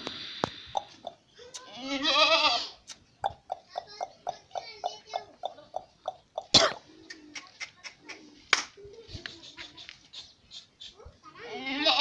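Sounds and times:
goats bleating: 0:01.6 - 0:02.8, 0:11.5 - 0:12.0.

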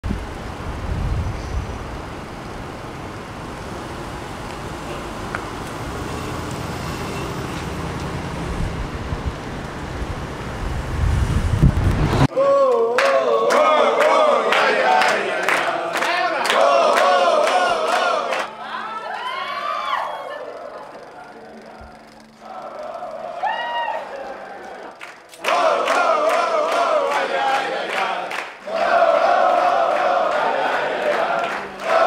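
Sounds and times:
street traffic rumble: 0:00.0 - 0:12.3
men singing together: 0:12.4 - 0:18.5, 0:21.5 - 0:32.0
hand claps: 0:12.7 - 0:18.5, 0:24.6 - 0:28.6, 0:29.9 - 0:32.0.

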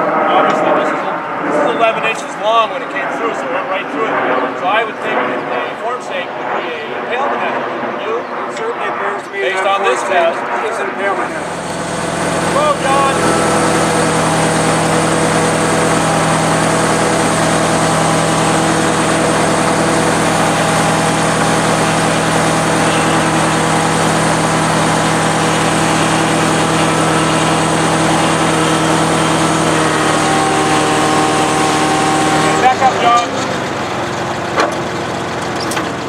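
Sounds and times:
truck engine idling: 0:11.3 - 0:36.0.

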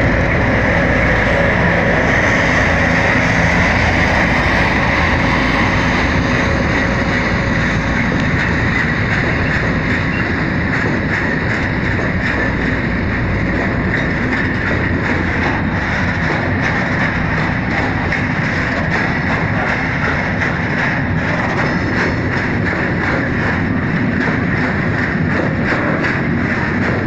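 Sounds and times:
diesel locomotive engine: 0:00.0 - 0:27.0
train wheels rumbling on rails: 0:00.0 - 0:27.0
clicks over rail joints: 0:03.0 - 0:27.0.

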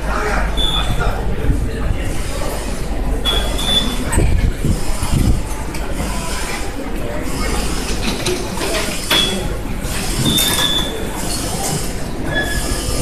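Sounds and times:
turnstiles clicking and clanking: 0:00.0 - 0:13.0.

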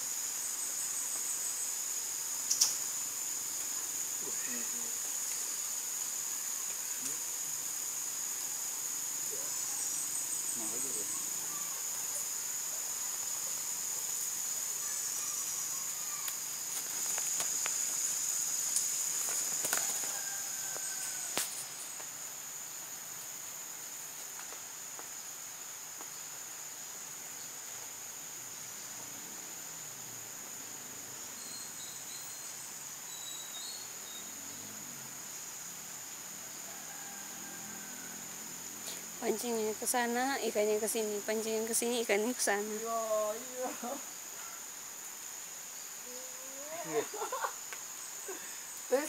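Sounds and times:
insects droning: 0:00.0 - 0:49.0
sharp clicks: 0:02.5 - 0:02.8.

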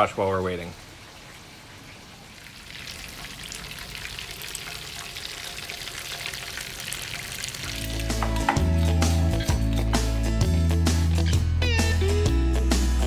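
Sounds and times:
chicken deep-frying in oil: 0:00.7 - 0:08.7.

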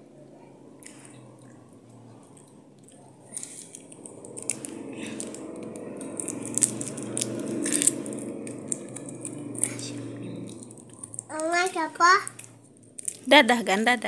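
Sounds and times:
child chewing food: 0:00.8 - 0:11.6.

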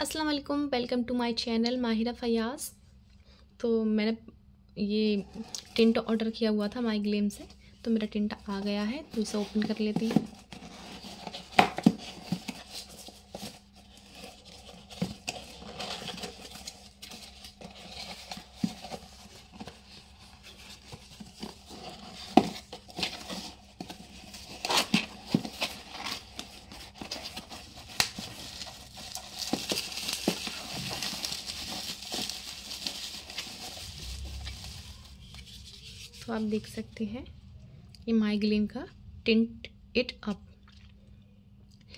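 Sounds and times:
crinkly rustling: 0:08.3 - 0:36.8
cardboard box being opened: 0:09.1 - 0:36.1.

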